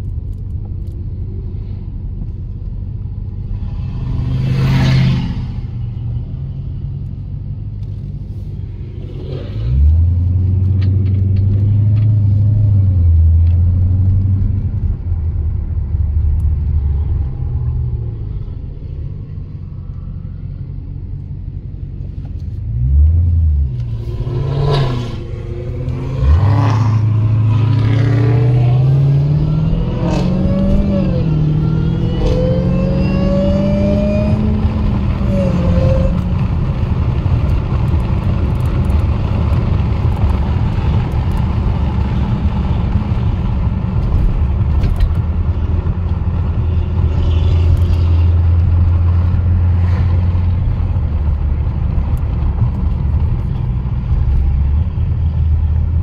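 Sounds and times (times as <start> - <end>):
car engine accelerating: 22.4 - 56.0.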